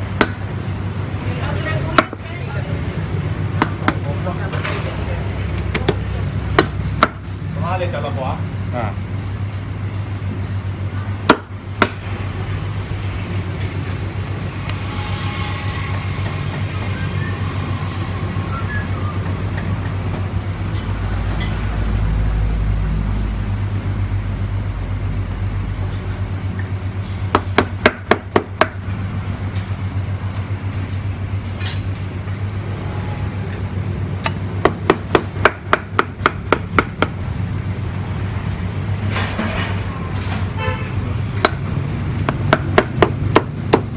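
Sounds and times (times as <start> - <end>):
cleaver chopping on wooden block: 6.6 - 7.2, 11.2 - 12.0, 27.3 - 28.8, 34.2 - 37.2, 42.2 - 43.9.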